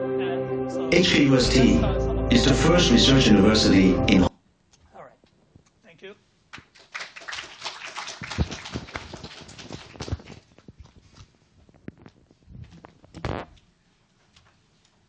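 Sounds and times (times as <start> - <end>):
microphone handling rustling: 9.9 - 13.7.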